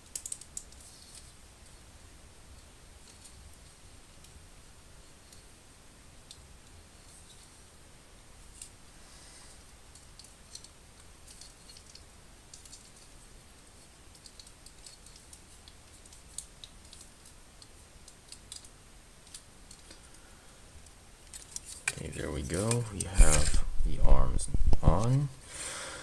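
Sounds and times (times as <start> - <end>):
plastic parts clicking together: 0.0 - 1.3, 14.1 - 20.0.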